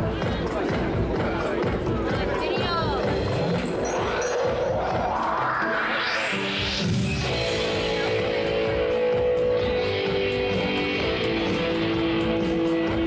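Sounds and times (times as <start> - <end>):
psychedelic trance band playing: 0.0 - 13.0
rising sweep: 3.5 - 8.1.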